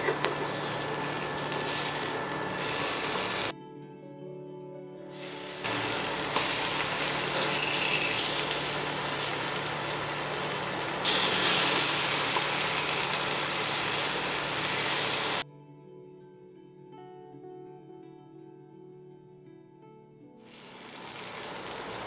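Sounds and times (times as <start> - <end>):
fish sizzling in hot oil: 0.1 - 3.5, 5.2 - 15.4, 20.5 - 22.0.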